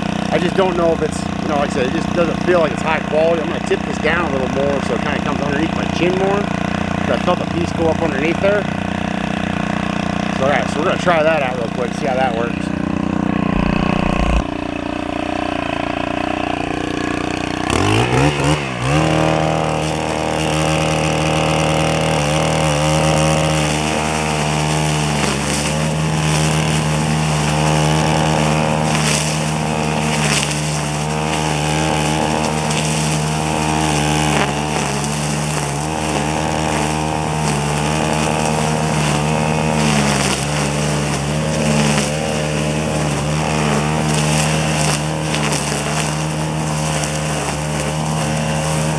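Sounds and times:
string trimmer engine revving: 0.0s - 48.9s.

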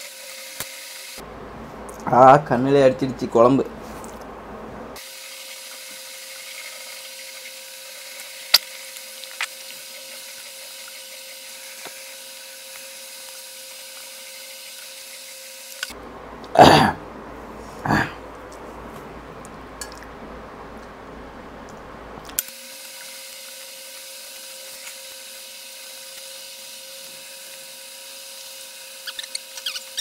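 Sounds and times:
person coughing: 16.5s - 17.0s, 17.8s - 18.2s.

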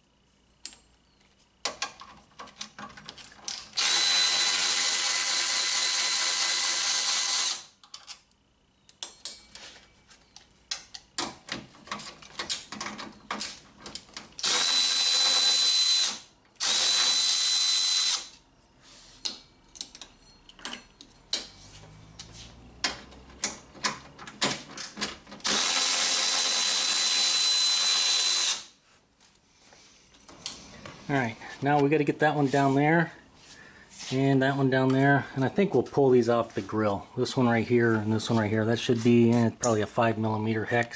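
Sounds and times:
electric ratchet whining: 3.5s - 7.8s, 14.4s - 18.4s, 25.4s - 28.8s
clinks of tool and bolts: 8.9s - 9.7s, 19.2s - 21.6s.

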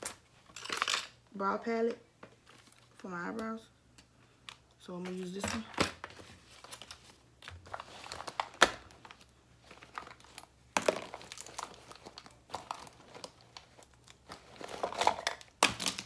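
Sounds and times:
packaging rustling and crinkling: 2.2s - 3.5s, 4.5s - 16.0s.

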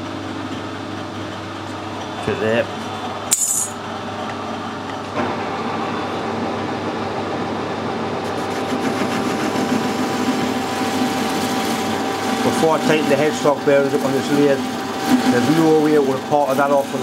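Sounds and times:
metal lathe cutting: 8.4s - 17.0s.

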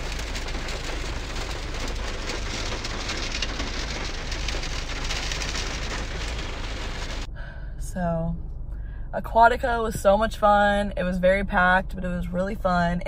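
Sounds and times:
rain pattering on car roof: 0.0s - 7.3s.

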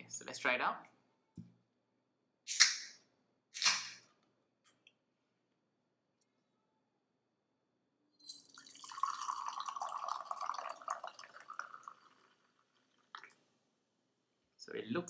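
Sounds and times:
fizzy drink pouring into glass: 8.2s - 13.4s.

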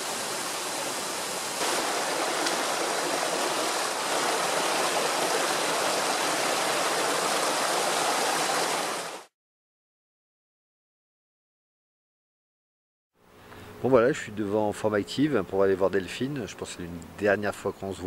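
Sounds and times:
stream rushing over stones: 0.0s - 9.3s.

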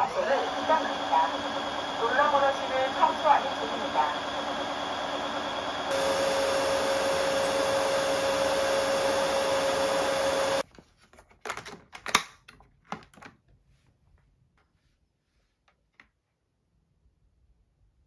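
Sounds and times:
vacuum motor and brush with whine: 0.0s - 10.6s.

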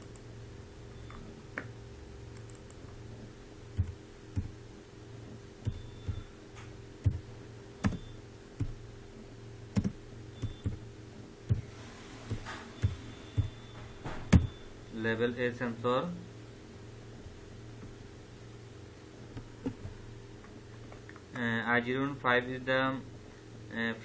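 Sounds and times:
steady low hum: 0.0s - 24.0s
keyboard keystrokes: 7.8s - 8.8s, 9.8s - 10.8s.

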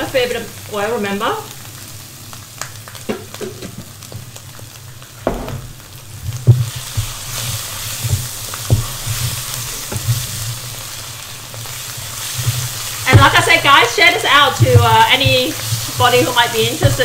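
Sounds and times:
chilli and onion sizzling in oil: 0.0s - 17.0s
wooden spatula scraping a pan: 6.4s - 17.0s.

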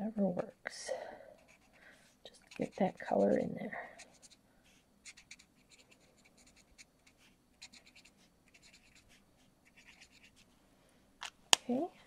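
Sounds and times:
marker scratching on card: 1.4s - 1.8s, 2.4s - 10.5s.

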